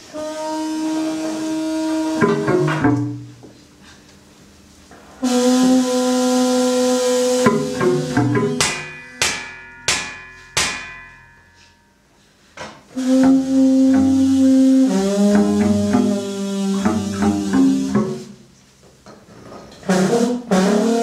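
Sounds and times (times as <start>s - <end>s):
low wind instrument notes: 0.0s - 3.8s, 5.1s - 11.9s, 12.9s - 18.5s
metallic percussion strikes: 2.2s - 3.5s, 7.4s - 18.5s.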